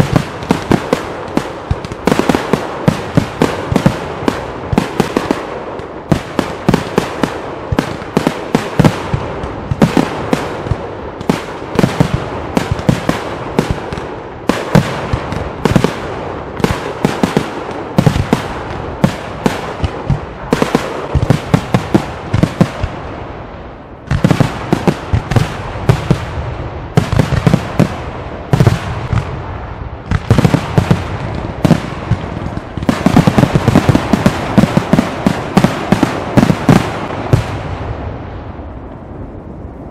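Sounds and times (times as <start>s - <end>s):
fireworks bursts and crackle: 0.0s - 39.9s.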